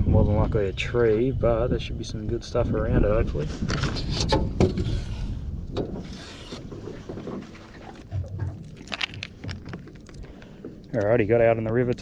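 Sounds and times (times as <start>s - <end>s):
wind on microphone: 0.0s - 10.0s
handling knocks and clicks: 8.6s - 12.0s.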